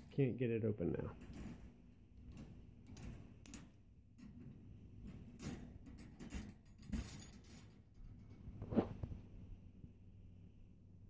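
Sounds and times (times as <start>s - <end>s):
carabiner clinking on wire bars: 0.0s - 0.2s, 1.2s - 8.3s.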